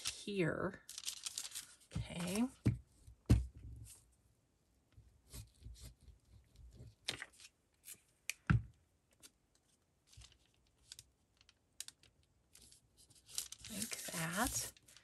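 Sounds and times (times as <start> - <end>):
paper rustling: 0.8 - 2.6, 10.1 - 11.5, 12.6 - 15.0.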